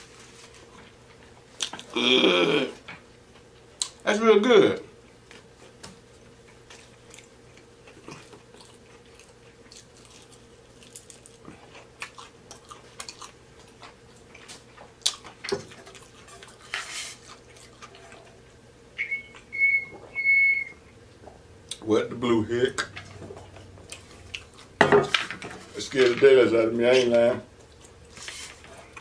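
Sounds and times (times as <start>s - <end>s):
chewing crunchy fried food: 4.9s - 18.7s, 22.8s - 24.8s, 27.5s - 29.0s
high whistling tone: 19.0s - 20.9s.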